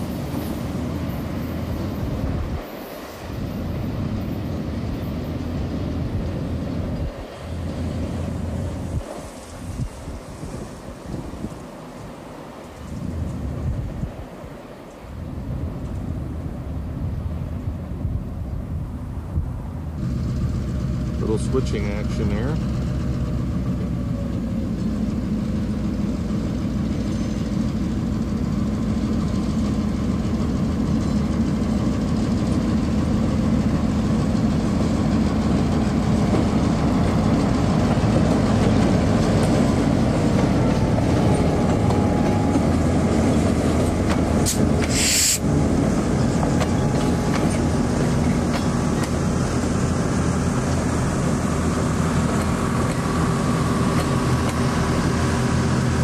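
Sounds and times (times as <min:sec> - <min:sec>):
diesel locomotive engine running: 0:00.0 - 0:56.0
train cars rolling on rails: 0:00.0 - 0:56.0
sharp hiss: 0:44.4 - 0:45.5.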